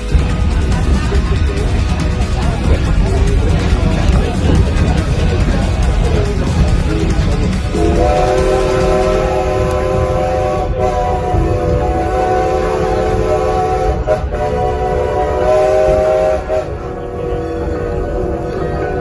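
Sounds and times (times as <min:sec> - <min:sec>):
train coach rumbling on rails: 0:00.0 - 0:19.0
steam locomotive chime whistle: 0:07.7 - 0:19.0.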